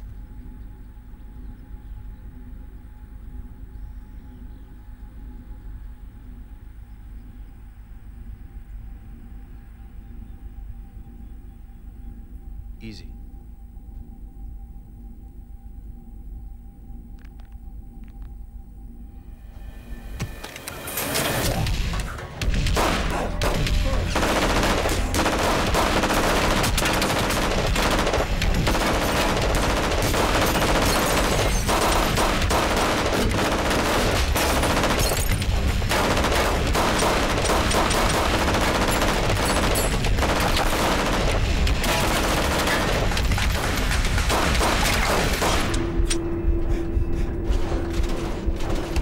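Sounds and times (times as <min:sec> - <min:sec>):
steady low tone: 0:00.0 - 0:44.3, 0:45.0 - 0:49.0
rapid gunfire: 0:21.5 - 0:45.8.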